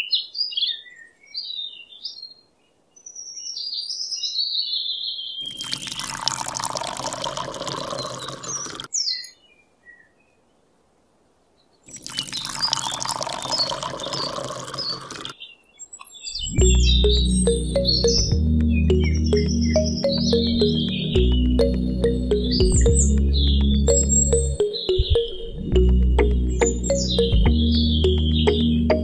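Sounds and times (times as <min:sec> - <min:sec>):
birds chirping: 0:00.0 - 0:10.6, 0:11.6 - 0:29.0
water pouring onto sand: 0:05.5 - 0:08.9, 0:11.9 - 0:15.3.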